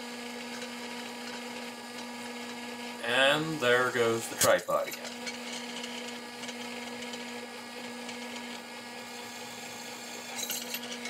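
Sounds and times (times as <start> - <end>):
drill press drilling steel: 3.5 - 11.0.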